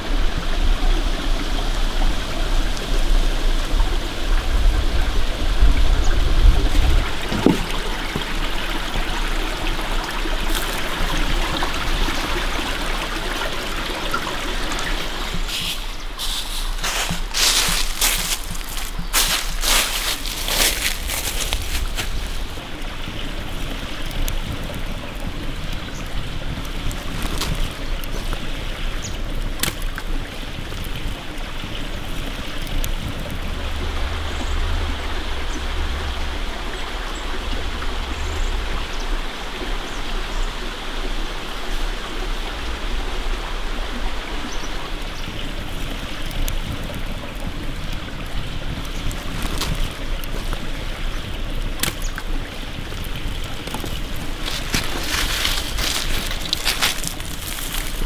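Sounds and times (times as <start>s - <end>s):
stream flowing: 0.0s - 58.0s
campfire popping: 6.5s - 36.1s, 45.0s - 58.0s.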